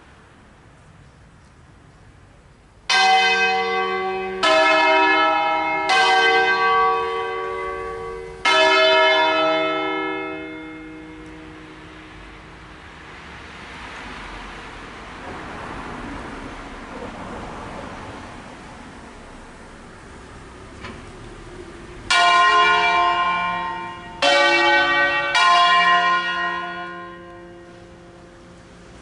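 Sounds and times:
church bells tolling: 0:02.9 - 0:13.0, 0:22.0 - 0:29.0.

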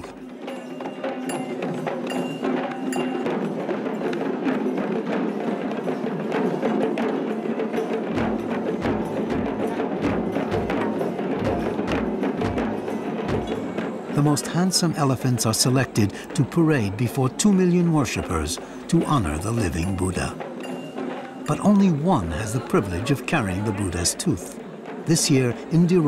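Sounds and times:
fast sharp drum strokes: 0:00.0 - 0:16.7
deep drum steady beat: 0:08.1 - 0:14.6.

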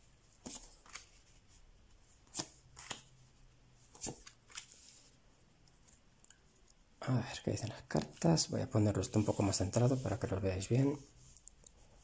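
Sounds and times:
cards shuffled and dealt: 0:03.9 - 0:05.0.

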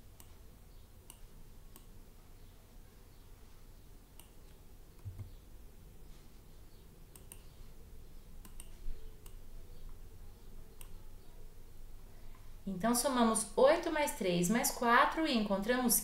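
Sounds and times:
low steady hum: 0:00.0 - 0:16.0
mouse buttons clicking: 0:01.0 - 0:02.0, 0:07.1 - 0:07.6, 0:08.4 - 0:10.0, 0:10.7 - 0:11.0.

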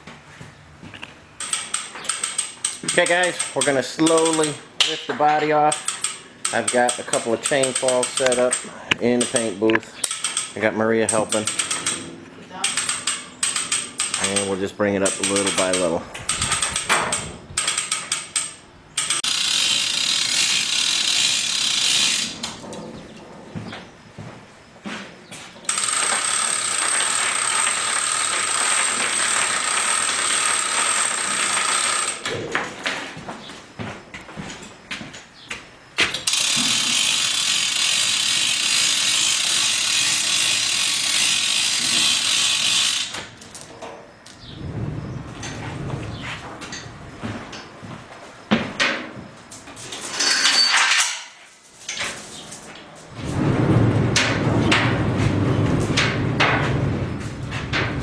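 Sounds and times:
chain hoist ratchet clicking: 0:01.4 - 0:22.6, 0:25.7 - 0:32.4, 0:36.1 - 0:43.6
chain rattling: 0:05.6 - 0:19.3.

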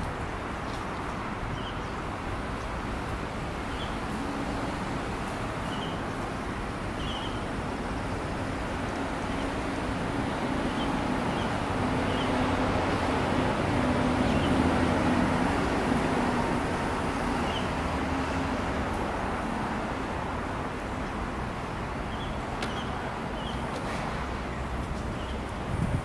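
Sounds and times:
distant road traffic: 0:00.0 - 0:26.0
wind on microphone: 0:25.4 - 0:26.0.

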